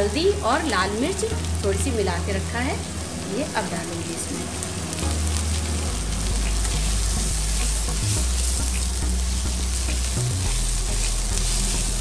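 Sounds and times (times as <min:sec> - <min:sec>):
vegetables sizzling in a pan: 0:00.0 - 0:12.0
low hum: 0:02.9 - 0:12.0.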